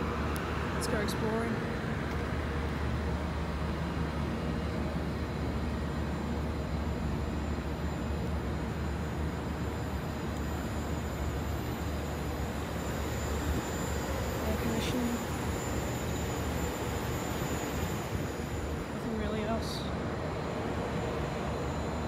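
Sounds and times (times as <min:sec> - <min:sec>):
air conditioning hum: 0:00.0 - 0:22.0.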